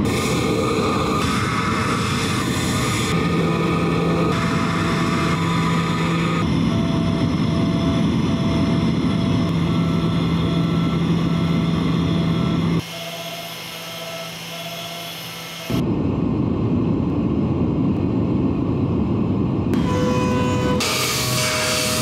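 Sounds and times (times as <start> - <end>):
machine spindle hum: 0.0 - 15.9, 19.7 - 22.0
hiss of metal cutting: 20.8 - 22.0.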